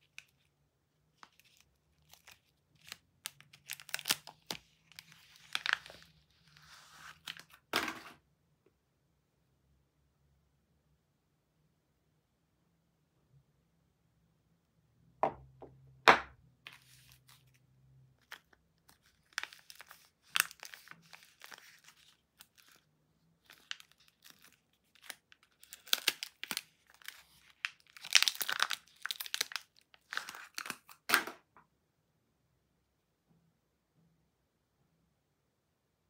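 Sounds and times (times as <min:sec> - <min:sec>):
paper crinkling and tearing: 0:01.2 - 0:07.6, 0:18.2 - 0:31.0.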